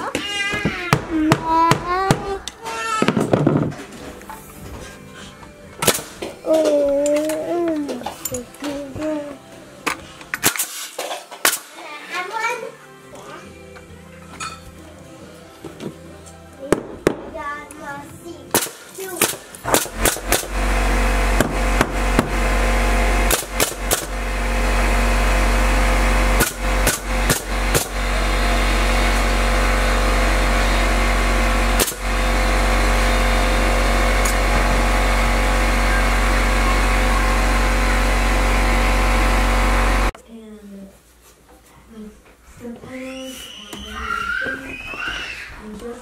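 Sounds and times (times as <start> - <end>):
nail gun firing into wood: 5.8 - 6.4, 10.4 - 11.8, 18.5 - 20.6, 21.4 - 22.4, 23.2 - 24.2, 26.3 - 28.0, 31.7 - 32.1
loud steady machine hum: 18.5 - 40.2.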